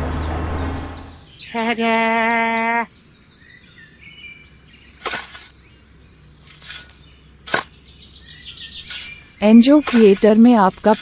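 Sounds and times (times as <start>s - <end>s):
faint bird chirps: 0.2s - 10.6s
toy shovel scraping sand: 5.0s - 5.5s, 6.4s - 7.7s, 8.8s - 11.0s.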